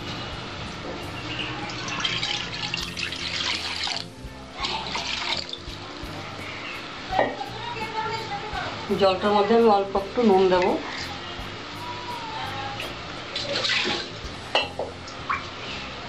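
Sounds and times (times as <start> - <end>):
water running into metal pan: 1.0 - 8.1, 12.4 - 15.6.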